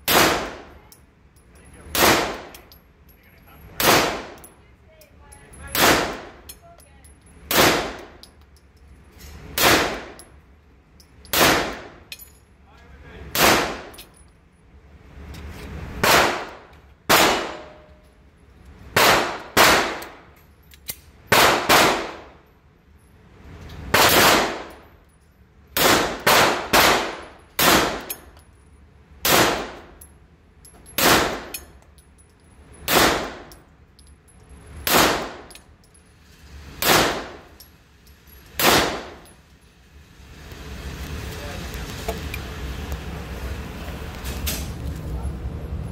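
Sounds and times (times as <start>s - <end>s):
pistol shots echoing indoors: 7.5s - 8.1s, 9.6s - 10.2s, 19.0s - 20.2s, 21.3s - 22.4s, 23.9s - 24.7s, 25.8s - 28.2s, 38.6s - 39.2s.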